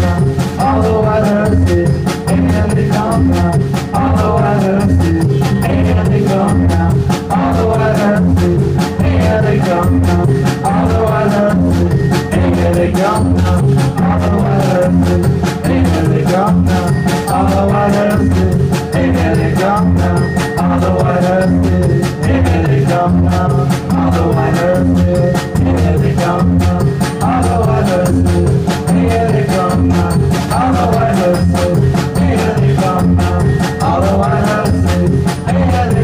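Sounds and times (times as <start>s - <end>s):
drum kit: 0.0s - 36.0s
repeating low notes: 0.0s - 36.0s.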